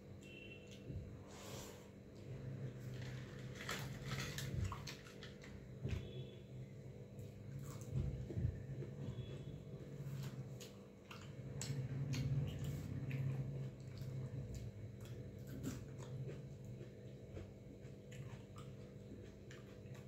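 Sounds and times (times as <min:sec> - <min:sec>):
chewing: 0:07.5 - 0:08.1, 0:10.2 - 0:20.0.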